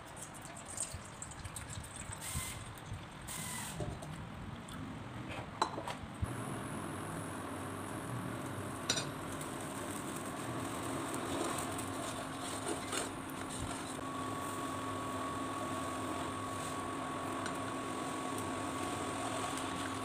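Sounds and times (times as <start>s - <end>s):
induction cooktop whirring: 0.0s - 4.2s, 5.3s - 20.0s
metal lid and spoon clinking: 8.9s - 9.1s.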